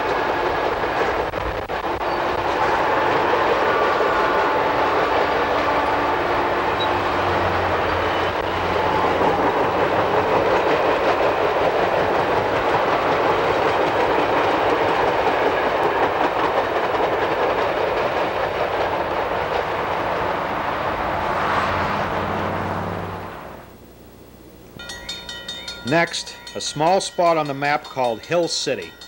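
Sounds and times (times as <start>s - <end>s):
wheels clattering over rail joints: 0.0s - 22.9s
passenger train passing at speed: 0.0s - 23.8s, 24.5s - 29.0s.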